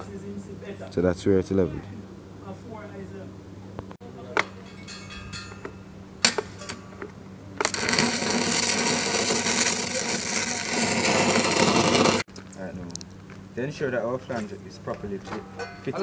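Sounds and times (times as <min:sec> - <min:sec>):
welding arc crackling: 0:07.5 - 0:12.3.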